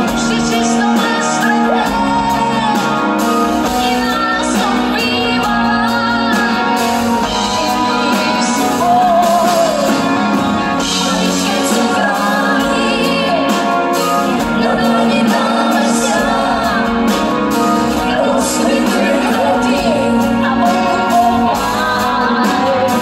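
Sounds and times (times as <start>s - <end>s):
live band playing pop music: 0.0s - 23.0s.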